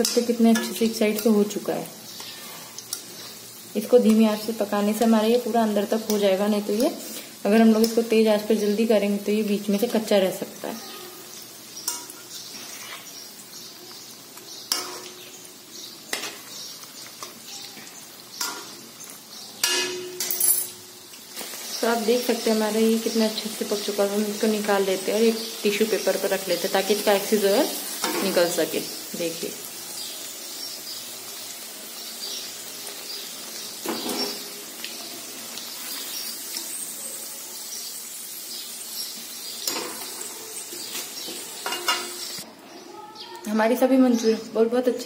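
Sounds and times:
metal utensils clinking on pan: 0.0s - 1.6s, 11.8s - 13.0s, 14.7s - 15.2s, 16.1s - 18.8s, 19.6s - 20.9s, 28.0s - 28.5s, 39.6s - 42.4s
food deep-frying in oil: 0.0s - 42.5s
utensil scraping pan: 11.9s - 13.2s.

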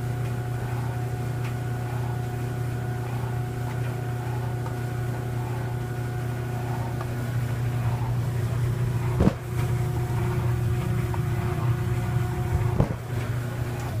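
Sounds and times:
clothes dryer running: 0.0s - 14.0s
sharp knocks: 9.2s - 9.4s.

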